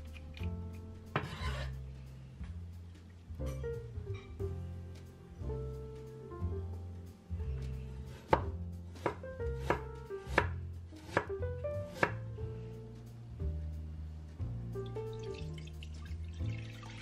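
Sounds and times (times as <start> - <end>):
soft background music: 0.0 - 17.0
cleaver chopping on cutting board: 8.2 - 11.3.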